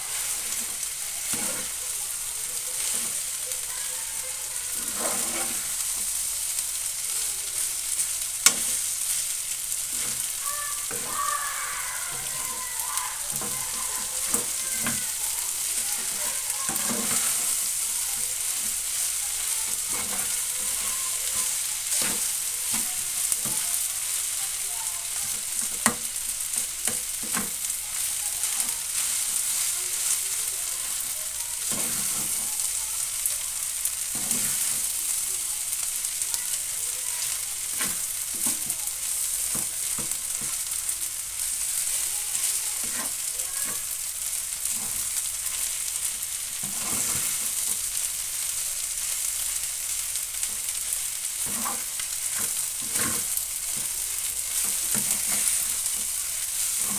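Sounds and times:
rice sizzling in frying pan: 0:00.0 - 0:56.9
metal spatula scraping pan: 0:00.1 - 0:01.8, 0:02.8 - 0:03.3, 0:04.7 - 0:06.1, 0:09.9 - 0:11.2, 0:13.3 - 0:23.8, 0:42.8 - 0:43.8, 0:46.6 - 0:47.6, 0:51.4 - 0:53.9, 0:54.6 - 0:56.9.

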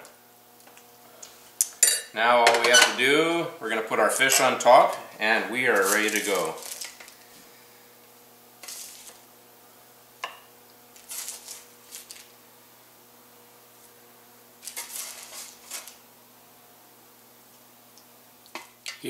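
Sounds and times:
spatula scraping baking sheet: 0:05.7 - 0:06.9, 0:08.6 - 0:09.2, 0:11.0 - 0:12.3, 0:14.6 - 0:16.0.

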